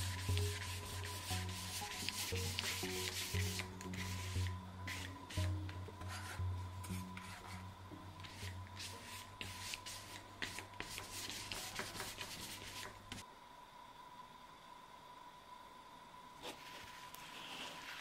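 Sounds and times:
paintbrush scratching on board: 0:00.0 - 0:07.6, 0:08.2 - 0:13.2.

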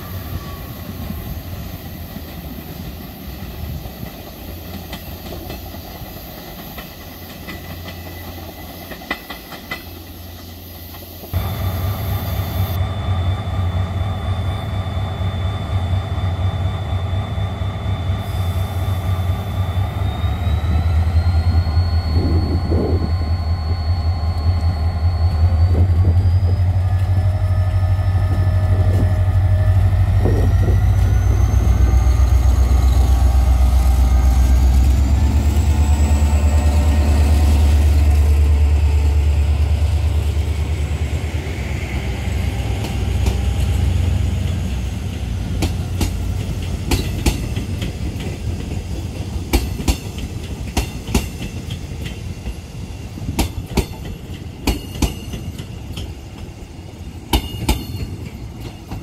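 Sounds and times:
diesel locomotive engine rumble: 0:00.0 - 0:59.0
engine whine rising in pitch: 0:11.4 - 0:45.6.

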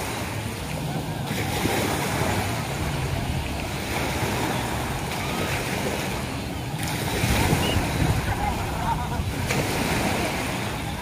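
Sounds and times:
small waves washing onto beach: 0:00.0 - 0:11.0
wind buffeting microphone: 0:07.0 - 0:11.0.

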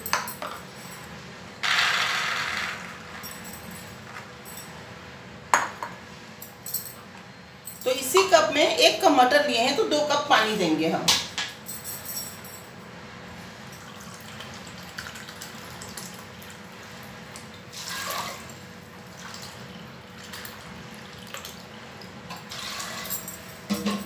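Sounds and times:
water pouring: 0:17.7 - 0:21.6.

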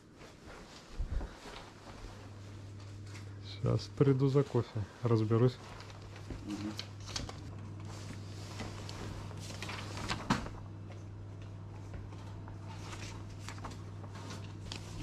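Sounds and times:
low electrical hum: 0:00.0 - 0:15.0
paper rustling: 0:05.4 - 0:15.0.

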